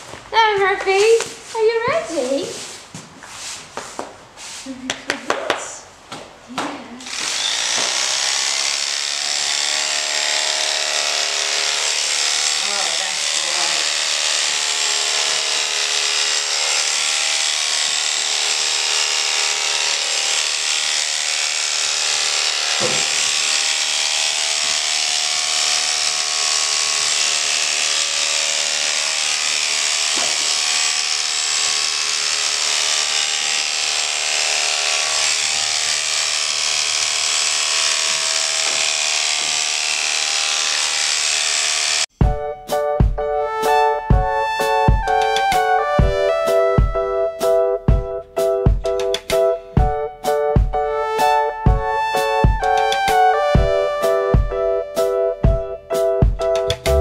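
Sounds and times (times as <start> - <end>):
electric clippers buzzing: 6.9 - 42.1, 43.6 - 48.0, 48.9 - 55.7, 56.5 - 57.0
music: 42.2 - 57.0.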